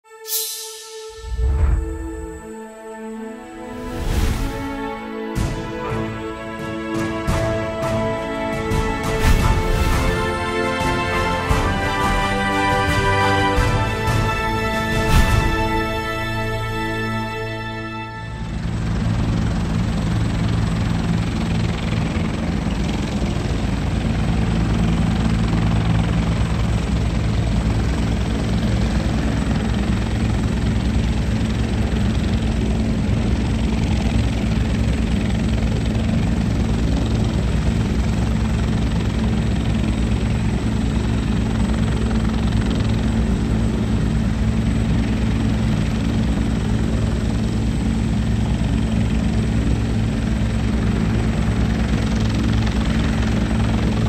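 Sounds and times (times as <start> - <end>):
turbine whine: 0.1 - 31.4
helicopter rotor beating: 3.7 - 54.0.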